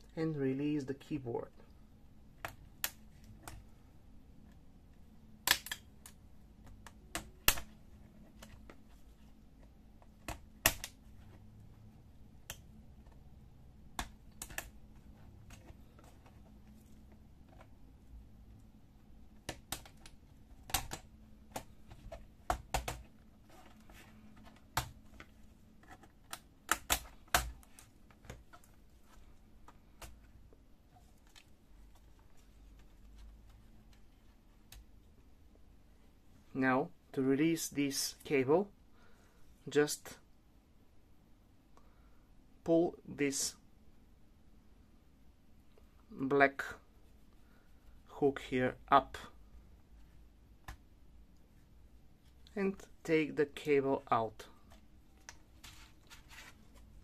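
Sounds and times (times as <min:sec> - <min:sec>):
plastic clicks and snaps: 0:05.4 - 0:07.7.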